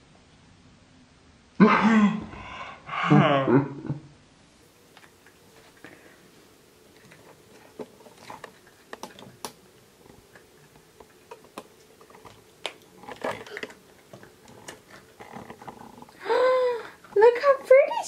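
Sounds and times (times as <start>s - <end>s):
plastic pieces clicking and rustling: 11.3s - 15.9s.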